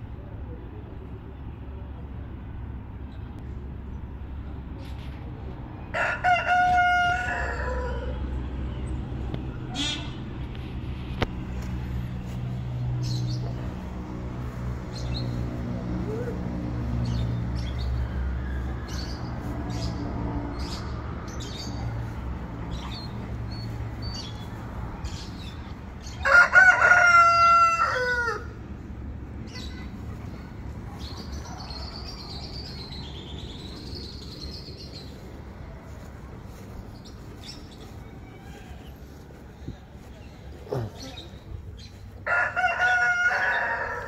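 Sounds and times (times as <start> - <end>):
rooster crowing: 5.9 - 8.3, 17.7 - 19.5, 26.1 - 28.6, 42.2 - 44.0
small birds chirping: 11.5 - 18.0, 18.6 - 26.3, 29.2 - 42.2.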